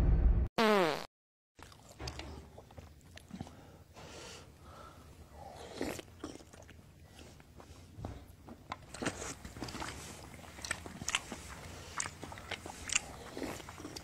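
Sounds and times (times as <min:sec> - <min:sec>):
man sipping and chewing: 0:01.6 - 0:03.8, 0:05.4 - 0:14.0.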